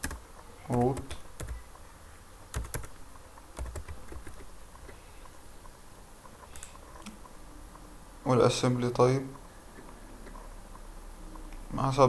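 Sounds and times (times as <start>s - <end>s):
keyboard keystrokes clicking: 0.0s - 1.6s, 2.5s - 2.9s, 3.6s - 4.5s.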